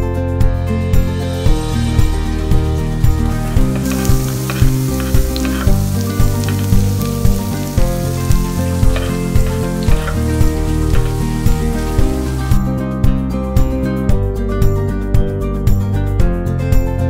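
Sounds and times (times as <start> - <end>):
onion sizzling in a frying pan: 1.5 - 12.8.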